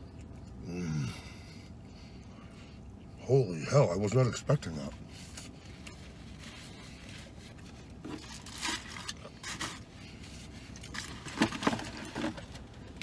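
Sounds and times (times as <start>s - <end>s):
paper packaging rustling and tearing: 6.3s - 9.9s, 10.8s - 12.6s.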